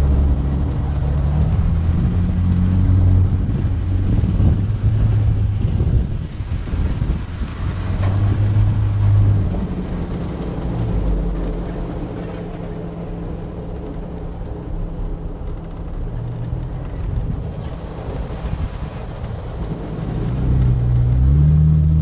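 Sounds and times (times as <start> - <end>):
off-road vehicle engine running: 0.0 - 22.0.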